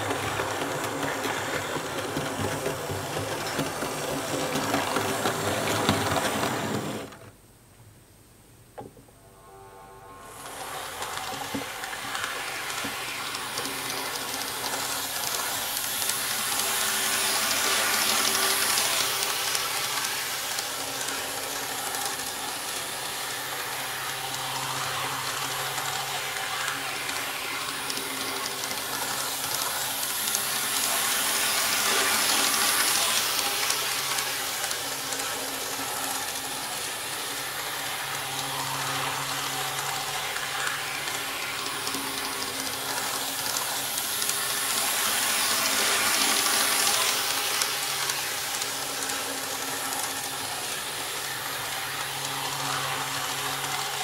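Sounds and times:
model train wheels and motor hiss: 0.0 - 7.4, 10.0 - 54.0.

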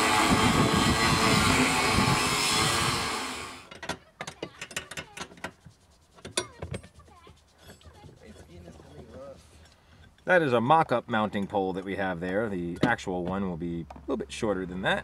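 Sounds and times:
angle grinder grinding steel: 0.0 - 3.8
tools clicking and knocking on metal: 3.7 - 5.6, 6.2 - 7.9, 12.7 - 14.1.

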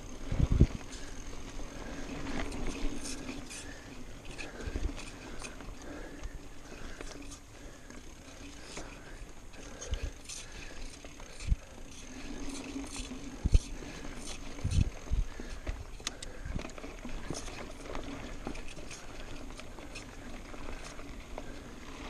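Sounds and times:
bike rattling clicks: 0.0 - 22.0
bike tyres rolling on dirt: 0.0 - 22.0.

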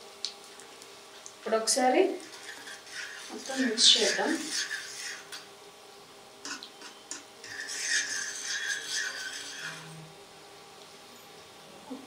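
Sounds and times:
spoon scraping frying pan: 2.2 - 5.5, 6.4 - 10.0.

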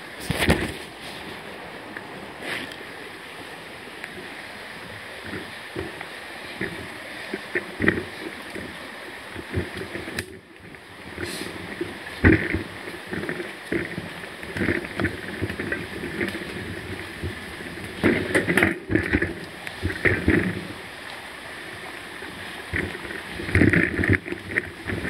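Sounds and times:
bike tyre rumble on dirt: 0.0 - 25.0
bike rattling and knocking: 6.6 - 8.7, 12.2 - 20.7, 22.7 - 25.0.

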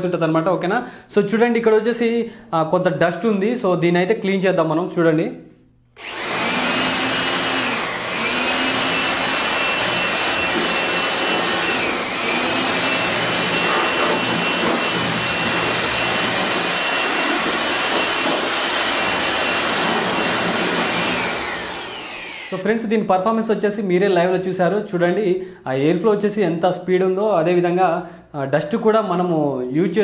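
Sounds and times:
electric air blower running: 6.0 - 22.7.

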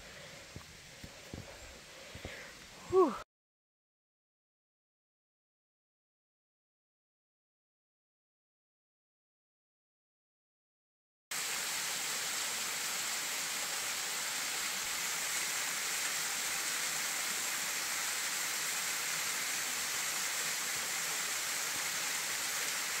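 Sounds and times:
waterfall splashing over rocks: 11.3 - 23.0.

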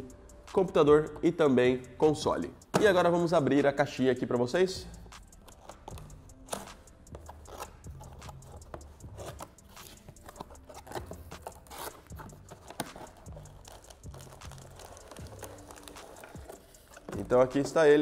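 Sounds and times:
cardboard box being opened: 9.1 - 17.8.

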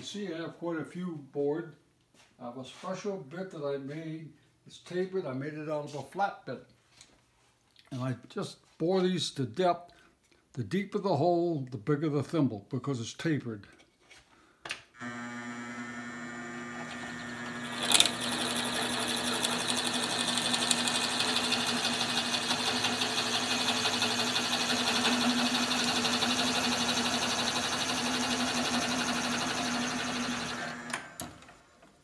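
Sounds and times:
drill bit cutting wood: 15.0 - 31.4
drill press motor humming: 15.0 - 31.8.

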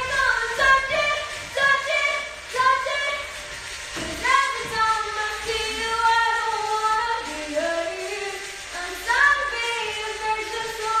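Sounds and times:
woman singing into microphone: 4.0 - 11.0.

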